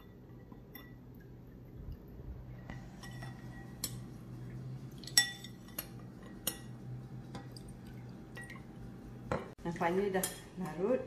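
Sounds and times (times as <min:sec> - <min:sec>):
low steady hum: 0:00.0 - 0:11.0
teaspoon clinking against glass bowl: 0:05.0 - 0:06.8.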